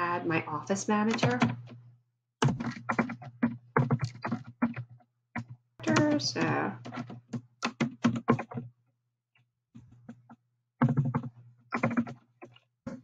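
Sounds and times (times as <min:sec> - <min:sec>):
keyboard typing: 0:01.0 - 0:01.8, 0:02.4 - 0:08.7, 0:09.9 - 0:13.0.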